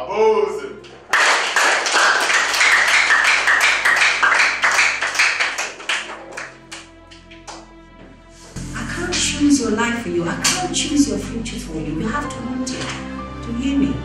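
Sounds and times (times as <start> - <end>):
soft background music: 0.0 - 1.1, 2.6 - 14.0
people clapping: 0.8 - 7.7.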